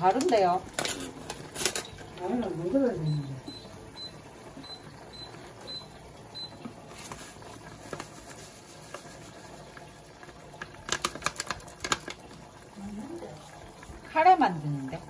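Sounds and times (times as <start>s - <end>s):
granules crackling into pot: 0.0s - 2.5s, 7.0s - 13.8s
vegetables boiling in saucepan: 0.0s - 15.0s.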